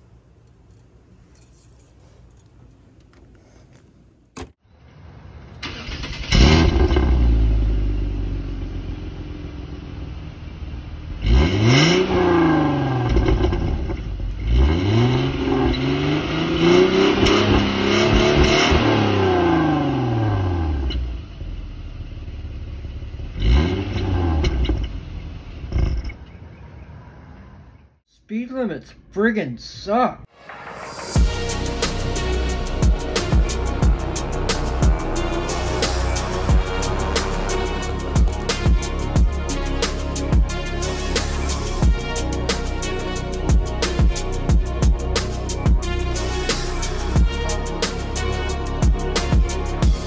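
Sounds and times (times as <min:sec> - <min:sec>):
car engine starting and revving: 0:05.3 - 0:26.0, 0:30.7 - 0:50.0.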